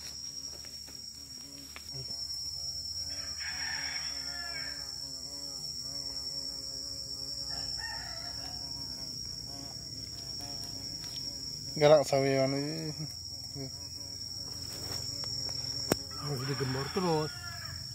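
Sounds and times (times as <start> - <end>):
insects droning: 0.0 - 17.9
rooster crowing: 3.1 - 5.0, 7.4 - 8.8, 16.1 - 17.9.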